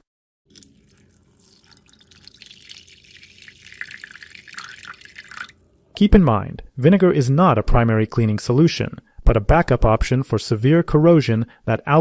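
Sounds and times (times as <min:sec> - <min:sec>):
water pouring and splashing: 0:00.5 - 0:05.9.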